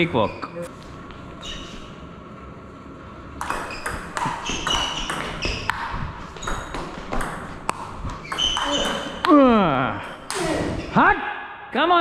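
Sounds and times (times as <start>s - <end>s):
table tennis ball hits: 3.4s - 9.4s.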